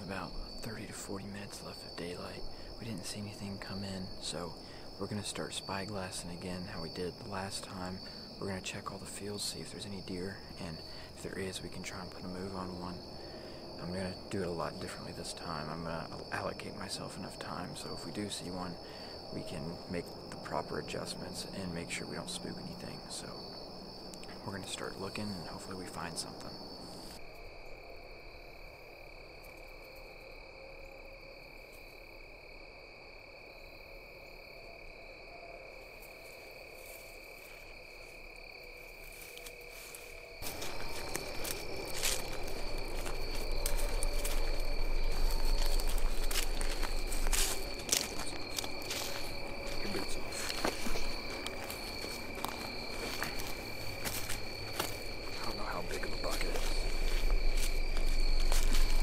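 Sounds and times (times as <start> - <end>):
insects trilling: 0.0 - 59.0
rustling in dry leaves: 36.0 - 59.0.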